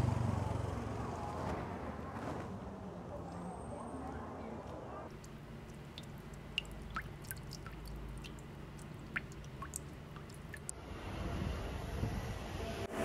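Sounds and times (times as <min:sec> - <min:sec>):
drip-like plinks: 0:05.1 - 0:10.7.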